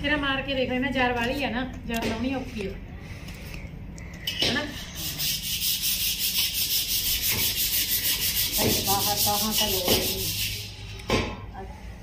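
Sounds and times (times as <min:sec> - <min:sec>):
scrubbing iron pan: 0:04.7 - 0:10.7.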